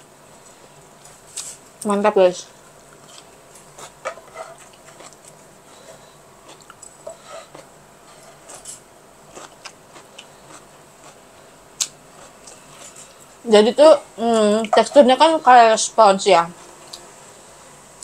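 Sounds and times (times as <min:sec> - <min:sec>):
chewing: 0:02.9 - 0:11.2, 0:11.8 - 0:13.2.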